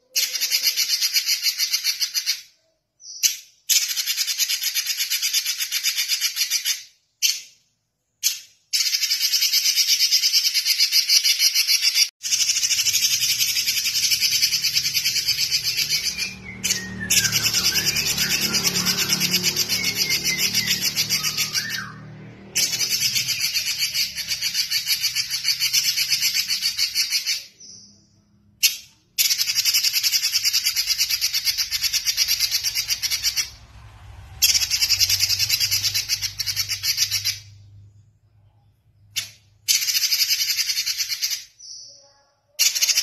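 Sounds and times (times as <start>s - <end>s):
gliding whistles: 12.3s - 38.6s
bird singing buzzy notes: 12.4s - 26.8s.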